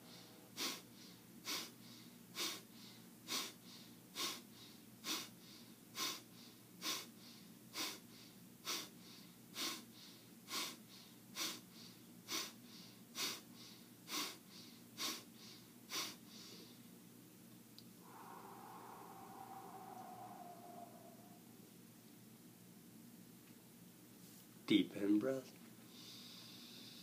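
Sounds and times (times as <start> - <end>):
soft in-breaths: 0.0 - 16.9, 18.0 - 21.6, 25.8 - 27.0
sharp nasal exhales: 1.5 - 1.7, 4.2 - 4.4, 12.3 - 16.7, 18.0 - 21.4.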